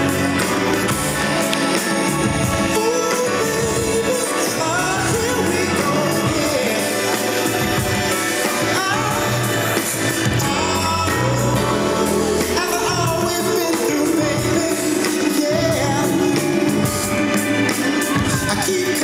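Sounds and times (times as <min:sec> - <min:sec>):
lead singer's vocals: 0:00.0 - 0:19.0
live band playing: 0:00.0 - 0:19.0.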